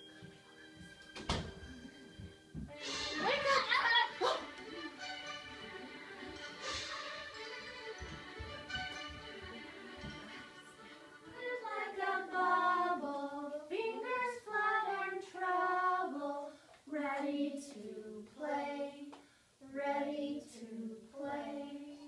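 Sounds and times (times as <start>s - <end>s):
children singing: 9.2s - 22.0s.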